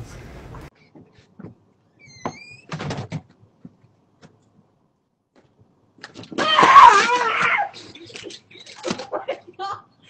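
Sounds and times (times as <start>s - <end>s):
door squeaking: 1.9s - 3.2s.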